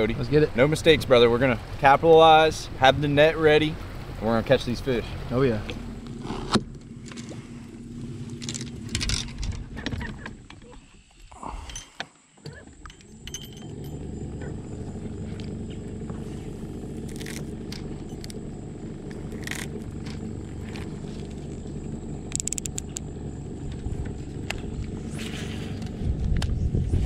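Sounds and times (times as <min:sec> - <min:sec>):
boat motor humming: 0:00.0 - 0:11.7, 0:12.3 - 0:27.0
fishing reel clicks: 0:22.3 - 0:23.0.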